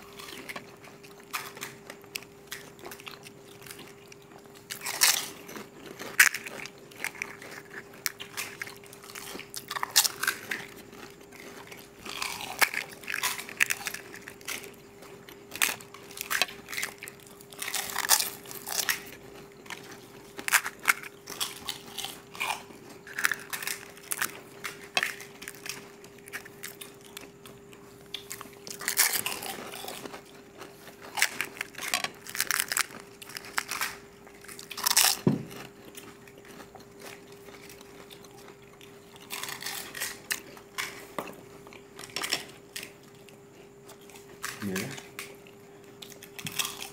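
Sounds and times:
crisp shells crunching: 0.0s - 27.3s, 28.1s - 41.1s, 46.0s - 46.9s
chewing: 0.0s - 46.9s.

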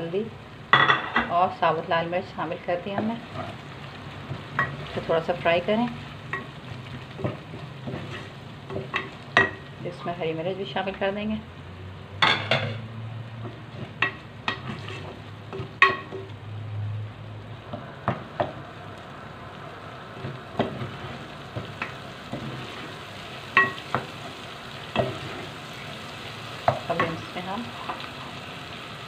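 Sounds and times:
oil sizzling in a pot: 0.0s - 29.0s
wooden spoon knocking and scraping pot: 7.1s - 9.6s, 13.4s - 16.3s.

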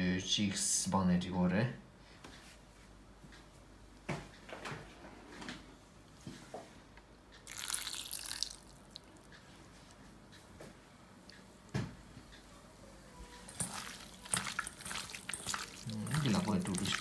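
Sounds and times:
water poured into bowl: 7.5s - 9.0s, 13.5s - 17.0s.

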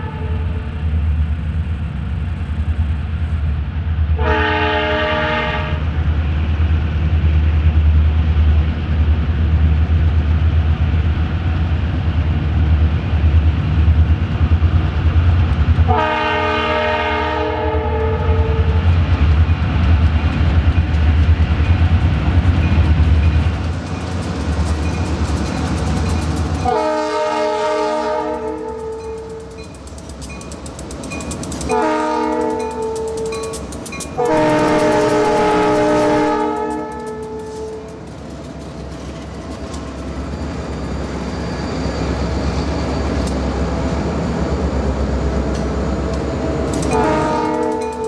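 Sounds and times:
locomotive air horn: 0.0s - 0.8s, 4.2s - 5.9s, 15.9s - 18.8s, 26.6s - 29.6s, 31.7s - 33.6s, 34.2s - 38.0s, 46.7s - 48.0s
diesel locomotive rumble: 0.0s - 48.0s
wheel and rail clatter: 18.6s - 48.0s.

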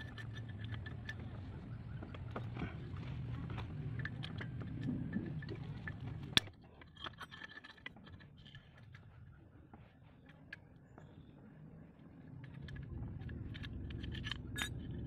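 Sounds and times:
low rumble: 12.1s - 15.0s.

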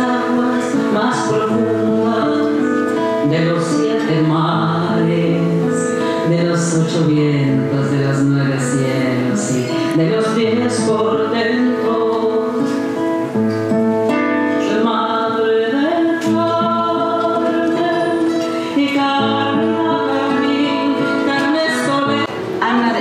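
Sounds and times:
woman singing long notes: 0.0s - 13.1s, 14.5s - 23.0s
acoustic guitar: 0.0s - 23.0s.

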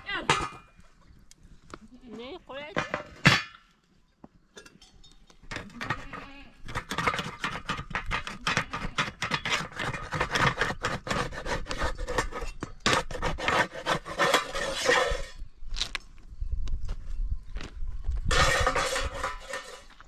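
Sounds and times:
scraping against a dish: 5.5s - 15.4s, 18.3s - 20.0s.

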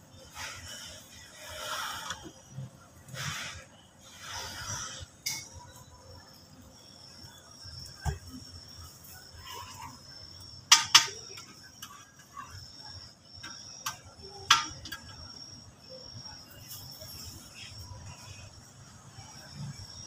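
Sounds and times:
high-pitched insect chirring: 4.0s - 20.0s.

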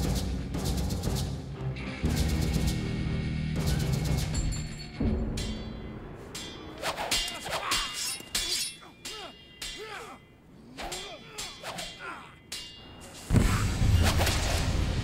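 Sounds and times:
blows and crashes: 13.0s - 15.0s.

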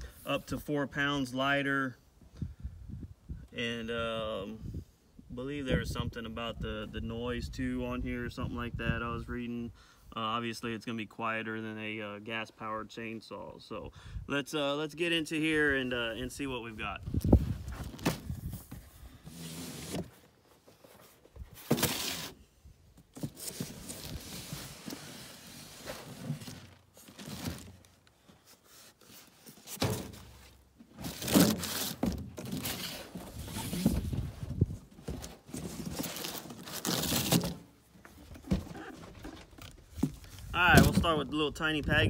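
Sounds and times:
cardboard rustling and scraping: 17.1s - 41.2s.

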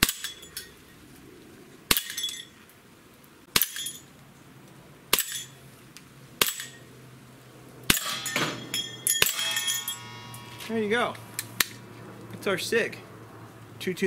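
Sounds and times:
clinking ring: 7.9s - 11.3s.

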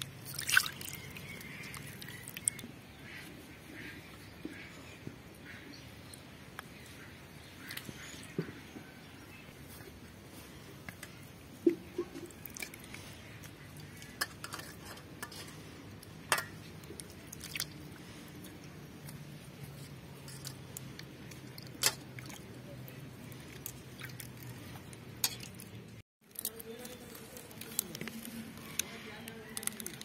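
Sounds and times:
water splashing in bowl: 0.0s - 2.6s, 16.4s - 18.0s.

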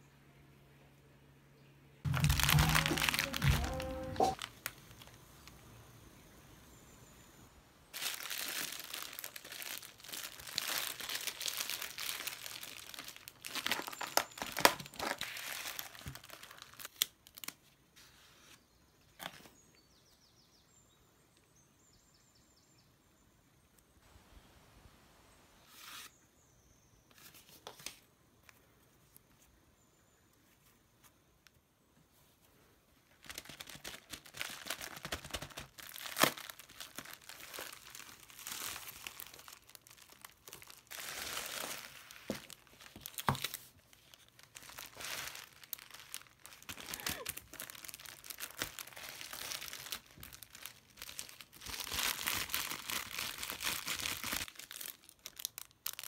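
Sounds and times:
plastic packaging crinkling: 2.1s - 5.6s, 7.9s - 17.7s, 33.1s - 56.0s.

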